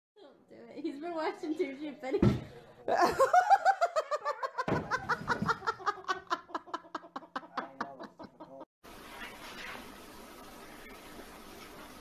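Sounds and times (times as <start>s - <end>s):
person laughing: 2.9s - 8.7s.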